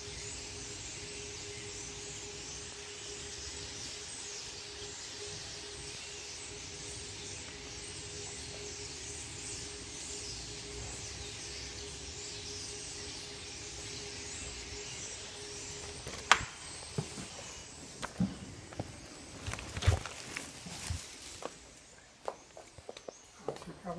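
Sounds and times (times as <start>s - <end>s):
flock of birds chirping: 0.0s - 23.9s
soft bumps: 16.1s - 21.6s.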